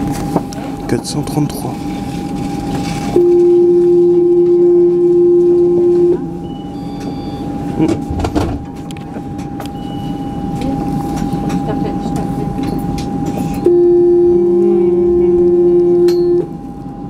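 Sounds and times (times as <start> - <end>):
tram hum: 0.0 - 17.0
loud steady warning beep: 3.1 - 7.8, 9.6 - 10.8, 13.6 - 16.7.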